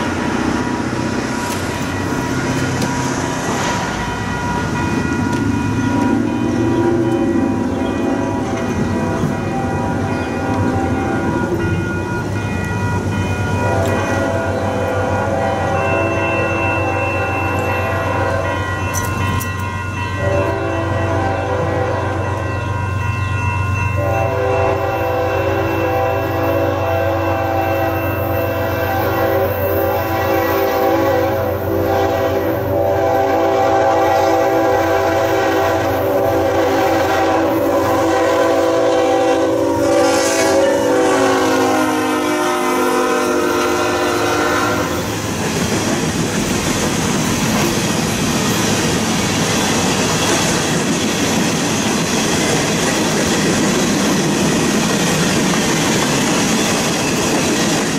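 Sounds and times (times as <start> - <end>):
locomotive horn: 13.6 - 18.6, 20.2 - 22.4, 24.0 - 45.1.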